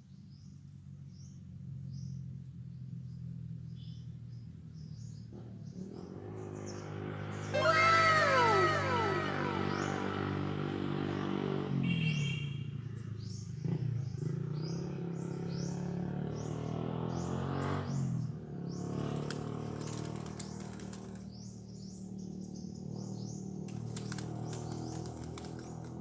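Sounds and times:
bird wings beating: 19.1s - 21.3s, 23.7s - 26.0s.

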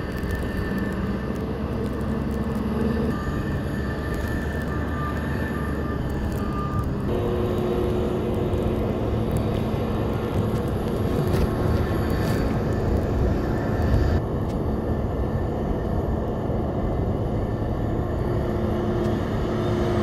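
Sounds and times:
vehicle engine running: 0.0s - 20.0s
reversing alarm beeping: 2.1s - 8.6s.

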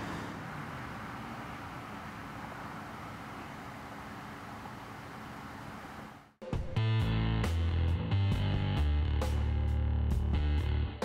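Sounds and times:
traffic noise: 0.0s - 6.4s
guitar music with heavy bass: 6.4s - 11.0s.

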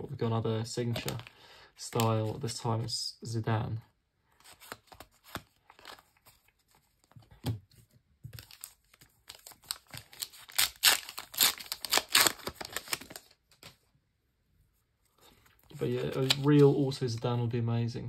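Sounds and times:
foil pack tearing: 9.3s - 13.3s.

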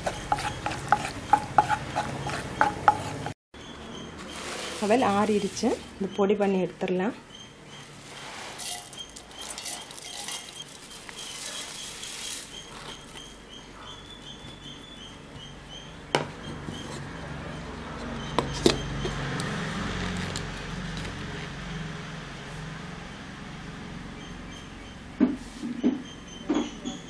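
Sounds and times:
rice flakes poured into steel jar: 8.4s - 12.6s.

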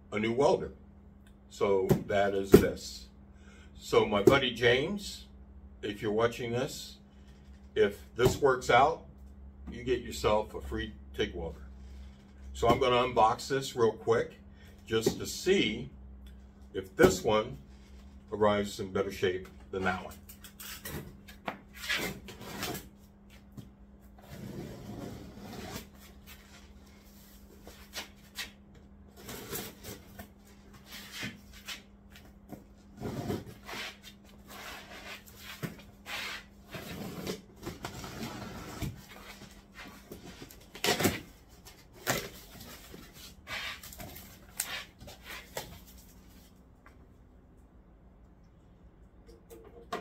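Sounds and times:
cardboard scraping and rustling: 24.2s - 28.5s, 32.8s - 46.5s.

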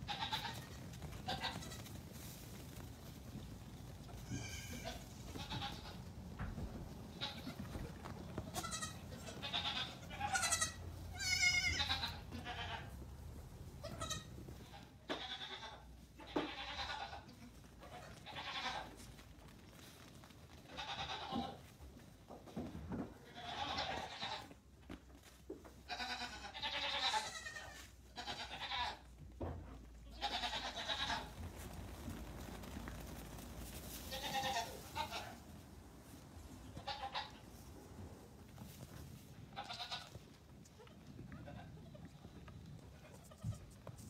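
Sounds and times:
goat kids bleating: 0.0s - 1.9s, 4.1s - 6.1s, 7.1s - 13.0s, 13.8s - 19.1s, 20.7s - 21.7s, 23.3s - 24.6s, 25.8s - 29.2s, 30.0s - 31.3s, 34.0s - 35.4s, 36.6s - 37.5s, 39.5s - 42.1s, 42.9s - 44.0s.

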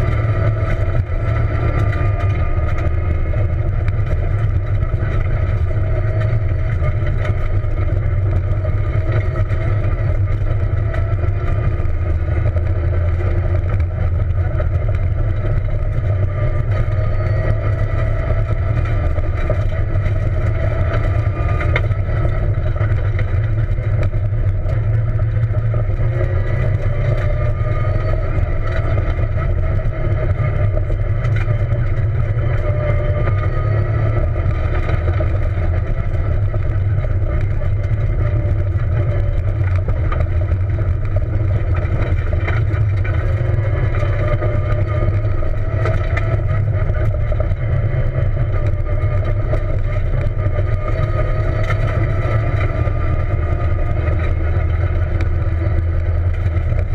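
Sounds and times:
car engine revving: 0.0s - 56.9s
heavy low rumble: 0.0s - 56.9s.

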